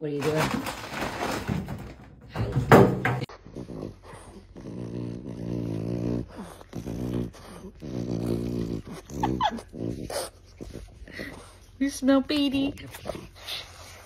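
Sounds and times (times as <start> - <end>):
dog grumbling: 3.3 - 11.6
dog whining: 3.9 - 11.6.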